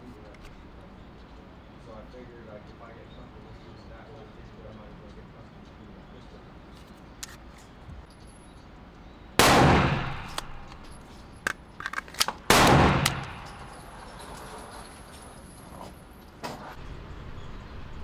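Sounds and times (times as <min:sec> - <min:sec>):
gunshots echoing: 0:09.4 - 0:11.0, 0:12.4 - 0:14.1.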